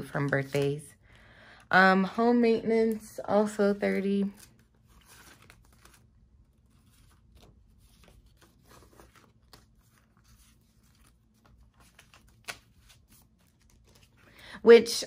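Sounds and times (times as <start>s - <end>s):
paper banknotes rustling: 2.8s - 14.5s
paper crackle: 3.7s - 14.4s.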